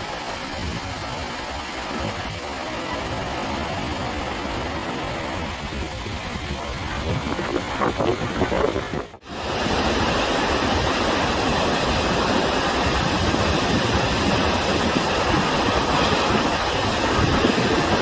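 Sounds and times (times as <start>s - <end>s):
water rushing down dam face: 0.0s - 18.0s.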